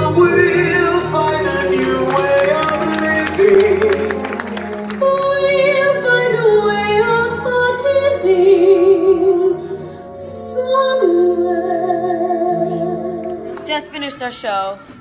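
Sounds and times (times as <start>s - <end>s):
woman singing with vibrato: 3.4s - 14.4s.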